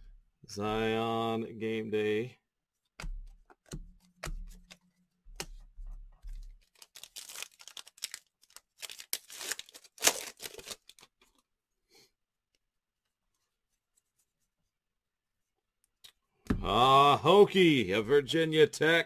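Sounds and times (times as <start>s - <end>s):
foil wrapper tearing and crinkling: 6.5s - 11.1s.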